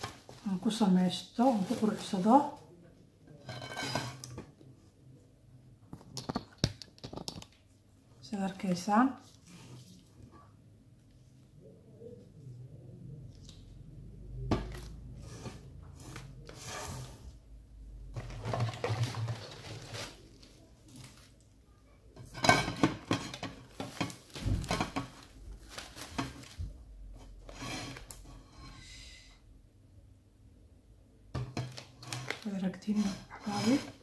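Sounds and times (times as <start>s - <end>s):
plastic leaves rustling: 0.0s - 2.6s, 18.2s - 21.4s, 23.6s - 26.8s.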